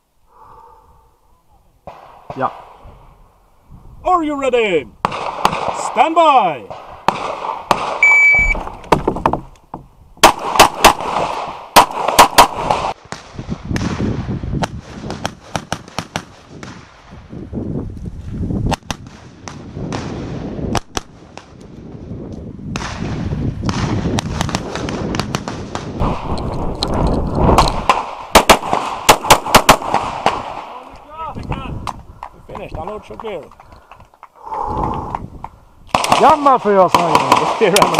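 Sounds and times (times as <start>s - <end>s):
shot timer beep: 8.0s - 8.6s
handgun firing rapid shots: 10.2s - 13.0s, 27.6s - 30.4s.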